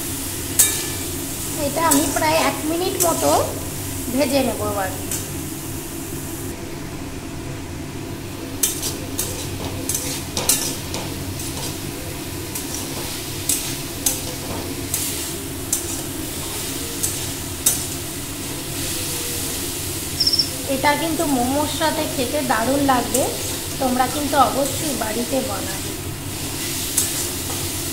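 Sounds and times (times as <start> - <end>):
food sizzling in a wok: 0.0 - 27.9
metal spatula scraping a wok: 8.6 - 11.9, 12.5 - 17.9, 26.4 - 27.9.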